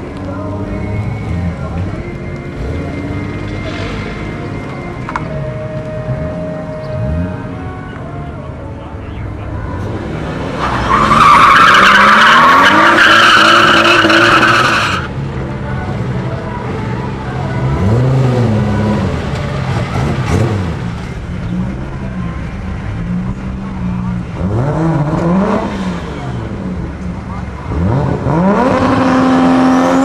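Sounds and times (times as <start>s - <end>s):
car engine revving: 9.6s - 15.2s, 17.1s - 30.0s
tyres squealing: 10.6s - 15.1s.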